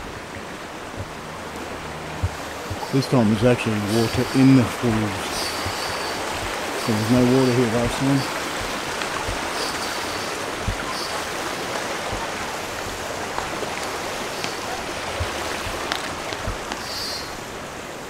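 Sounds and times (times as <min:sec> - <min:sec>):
soft low thumps: 0:00.0 - 0:16.9
water rushing over rock: 0:00.0 - 0:18.0.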